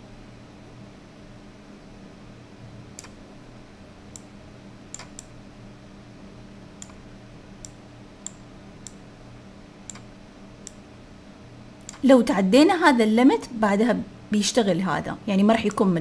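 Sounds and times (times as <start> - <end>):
faint steady hum: 0.0 - 16.0
computer mouse clicking: 3.0 - 3.2, 4.9 - 5.3, 6.8 - 7.0, 9.9 - 10.8, 11.8 - 12.1.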